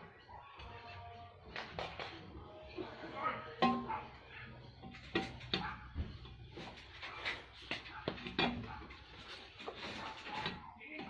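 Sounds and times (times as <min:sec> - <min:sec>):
dog barking: 0:05.4 - 0:06.2.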